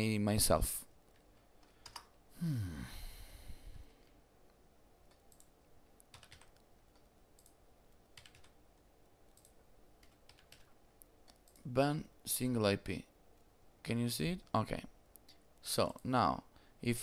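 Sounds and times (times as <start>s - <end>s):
keyboard keystrokes: 5.1s - 7.6s, 8.2s - 8.6s, 9.3s - 11.6s.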